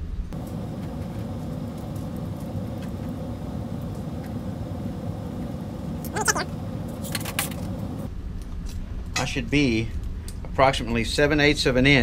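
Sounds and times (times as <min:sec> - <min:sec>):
low machine hum: 0:00.0 - 0:08.2.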